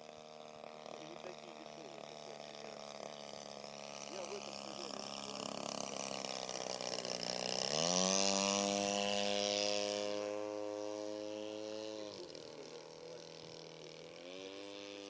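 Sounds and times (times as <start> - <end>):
model plane engine: 0.0 - 15.0.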